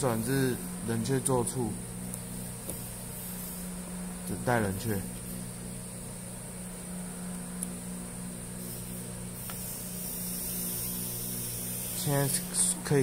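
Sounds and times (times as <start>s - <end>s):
electrical mains hum: 0.0s - 13.0s
high hiss: 8.6s - 12.8s.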